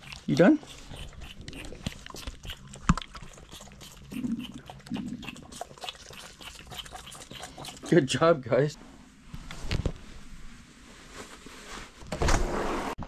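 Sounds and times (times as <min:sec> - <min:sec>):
lambs sucking from bottles: 0:00.0 - 0:08.2.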